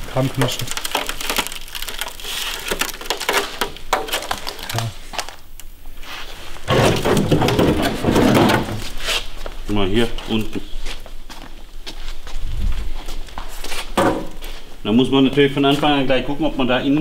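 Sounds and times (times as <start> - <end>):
rusted sheet metal crunching: 0.0 - 5.2, 6.6 - 9.2, 13.8 - 14.6.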